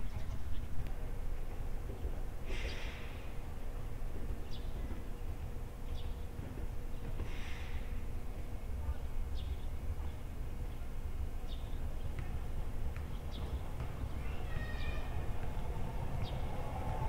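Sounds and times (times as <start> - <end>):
electric tram rumbling: 13.6 - 17.0.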